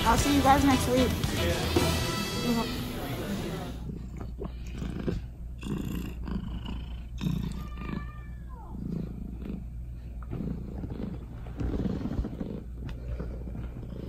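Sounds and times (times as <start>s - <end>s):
cat purring: 3.6s - 14.0s.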